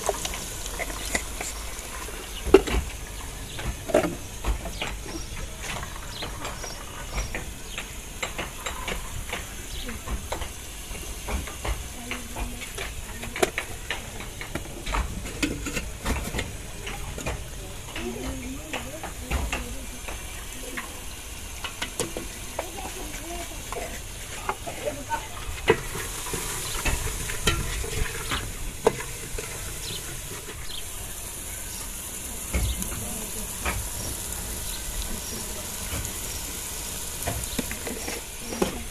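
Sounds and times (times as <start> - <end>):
cooking hiss: 0.0 - 38.9
food sizzling in a pot: 0.0 - 38.9
metal ladle scraping a saucepan: 23.7 - 30.8, 37.6 - 38.9.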